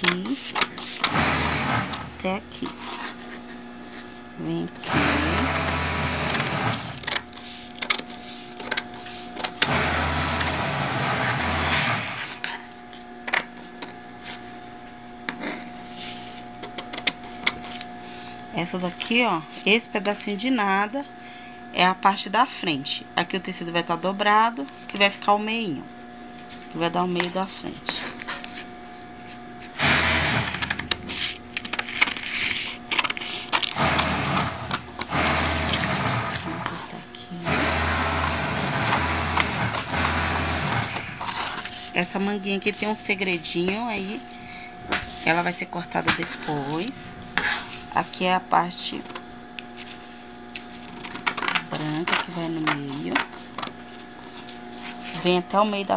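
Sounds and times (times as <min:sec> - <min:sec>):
paper scraping and rustling: 0:31.0 - 0:34.7, 0:40.8 - 0:47.9.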